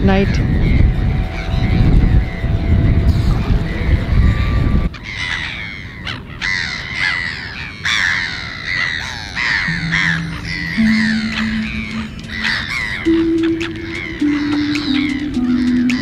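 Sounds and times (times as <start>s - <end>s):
low rumble: 0.0s - 5.0s
low steady note: 0.0s - 5.0s, 9.7s - 16.0s
gulls calling: 0.0s - 16.0s.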